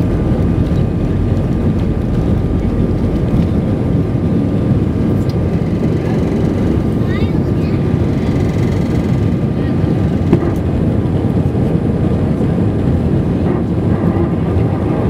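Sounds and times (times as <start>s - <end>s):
jet engine roar in cabin: 0.0s - 15.0s
thin steady engine whine: 0.0s - 15.0s.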